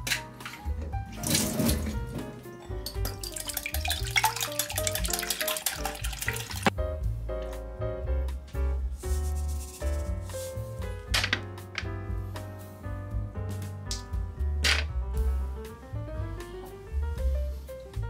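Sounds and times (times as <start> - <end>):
background music: 0.0 - 18.0
whisk beating eggs in glass bowl: 3.2 - 6.7.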